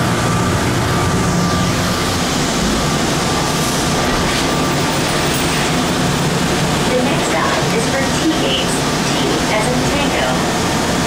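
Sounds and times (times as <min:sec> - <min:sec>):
train running in a tunnel: 0:00.0 - 0:11.0.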